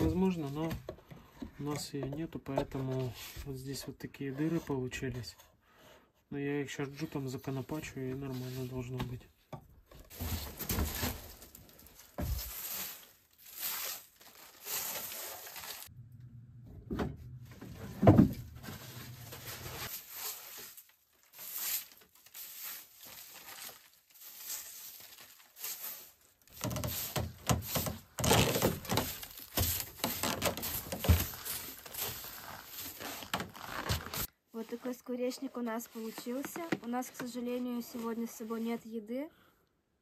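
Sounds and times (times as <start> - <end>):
scrapes and rustles on wood: 17.6 - 38.8.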